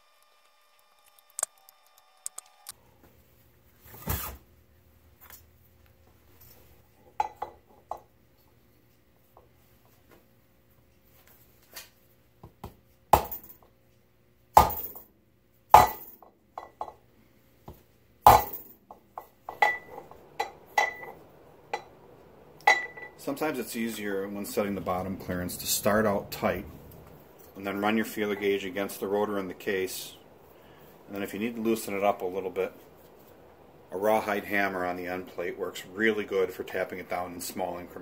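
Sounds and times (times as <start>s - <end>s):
metal clinks and knocks: 18.3s - 21.2s.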